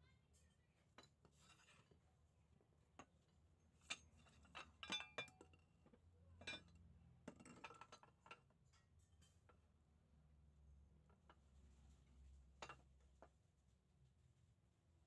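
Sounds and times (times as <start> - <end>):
faint metallic clinks and knocks: 0.3 - 2.0, 2.8 - 9.8, 11.0 - 13.4.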